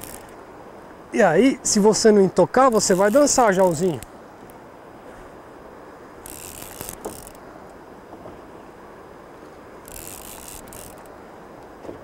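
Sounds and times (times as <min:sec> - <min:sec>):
fishing reel ratcheting: 0:00.0 - 0:00.4, 0:02.7 - 0:04.1, 0:06.2 - 0:07.4, 0:09.8 - 0:11.1.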